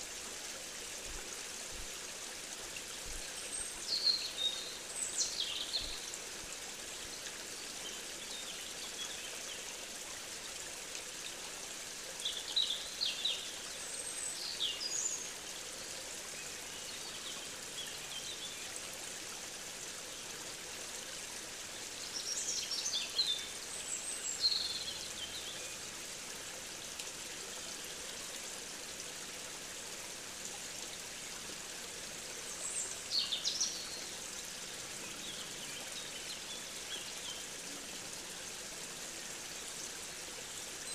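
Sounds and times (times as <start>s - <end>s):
stream water flowing: 0.0s - 40.9s
songbird singing: 3.6s - 6.1s, 22.0s - 25.8s, 32.5s - 34.2s.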